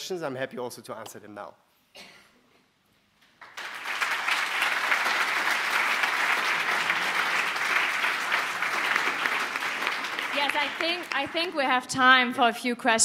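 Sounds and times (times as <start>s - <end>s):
audience applauding: 3.4s - 11.9s.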